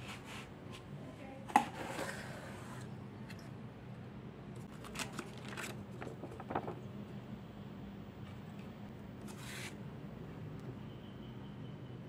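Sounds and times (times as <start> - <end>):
paper and card rustling: 4.7 - 6.9.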